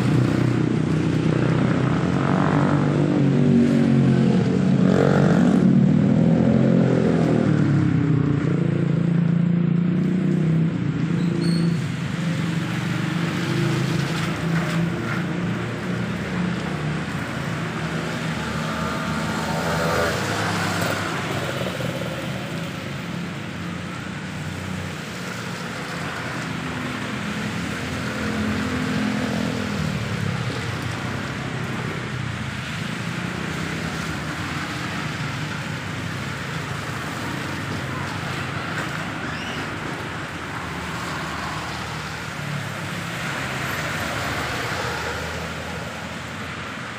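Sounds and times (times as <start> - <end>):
tyres hissing on wet road: 0.0 - 5.6, 11.4 - 46.9
vehicle engines passing: 0.0 - 46.9
steady rain: 12.0 - 46.8.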